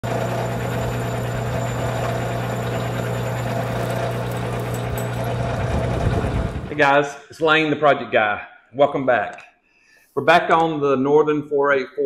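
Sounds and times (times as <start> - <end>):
metal lathe humming: 0.0 - 6.7.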